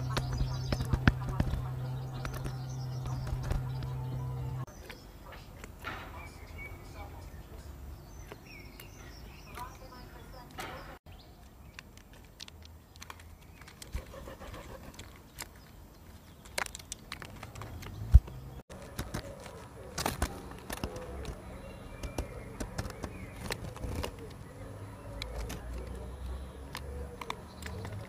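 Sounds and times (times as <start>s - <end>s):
beaks tapping on plastic feeder: 0.0s - 6.4s, 16.4s - 24.4s.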